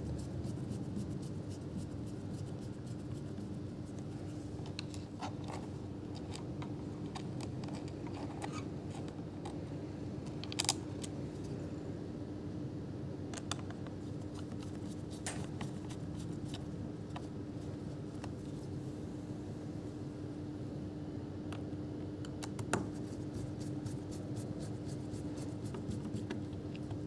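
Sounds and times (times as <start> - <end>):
steady low hum: 0.0 - 27.0
light clicks and taps: 13.3 - 15.9.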